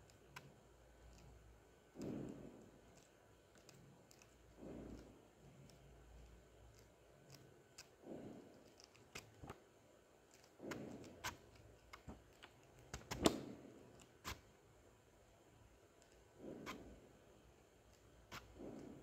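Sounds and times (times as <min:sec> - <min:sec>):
book pages being flipped: 0:06.6 - 0:09.6, 0:10.3 - 0:14.5, 0:17.9 - 0:19.0.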